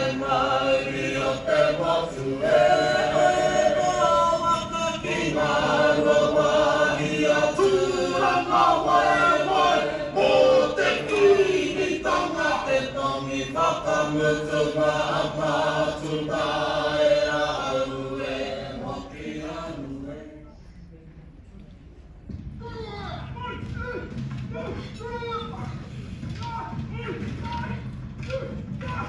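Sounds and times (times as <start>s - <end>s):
group singing over speakers: 0.0s - 20.6s.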